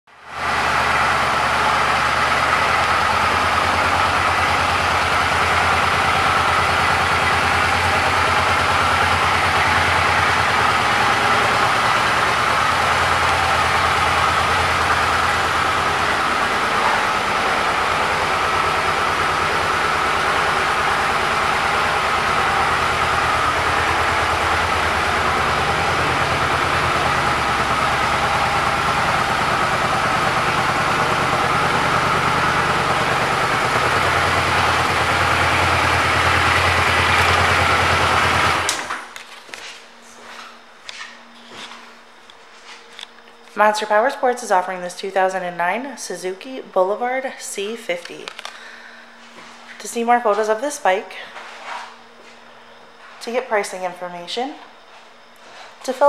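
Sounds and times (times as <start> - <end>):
motorcycle engine idling: 0.2 - 38.9.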